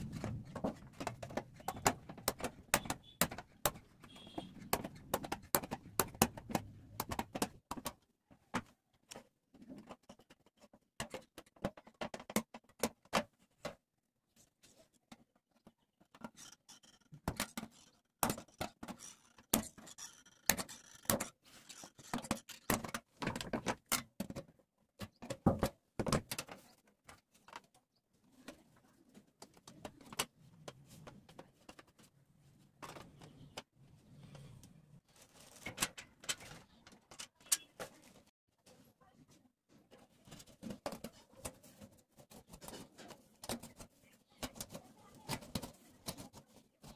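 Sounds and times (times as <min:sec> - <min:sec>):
tinplate clicks and crinkles: 0:14.7 - 0:32.1, 0:32.8 - 0:38.3.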